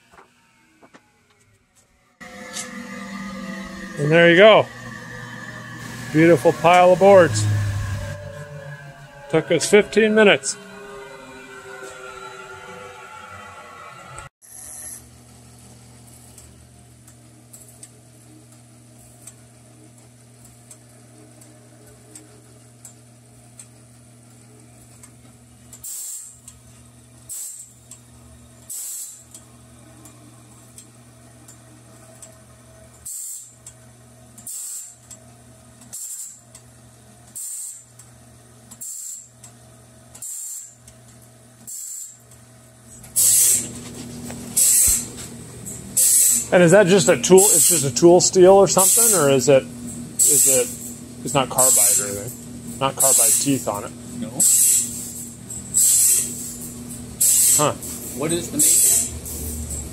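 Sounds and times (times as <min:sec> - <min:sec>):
motor humming: 0:00.0 - 0:14.3, 0:38.7 - 0:59.9
grinding wheel grinding blade teeth: 0:00.0 - 0:15.0, 0:35.8 - 0:36.6, 0:38.7 - 0:41.0, 0:41.6 - 0:49.6, 0:50.2 - 0:59.9.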